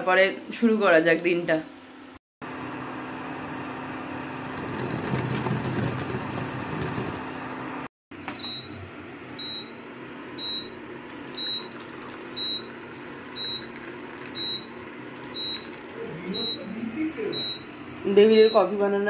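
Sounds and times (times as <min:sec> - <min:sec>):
induction cooktop warning beeps: 0:08.3 - 0:19.0.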